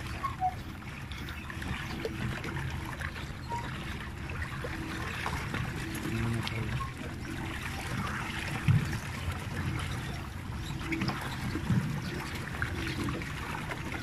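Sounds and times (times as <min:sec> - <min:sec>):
water trickling and churning: 0:00.0 - 0:14.0.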